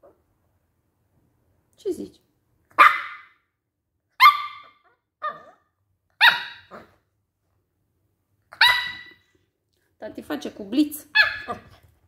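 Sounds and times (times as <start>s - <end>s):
puppy barking: 2.7s - 3.4s, 4.2s - 7.0s, 8.5s - 9.2s, 11.1s - 11.8s.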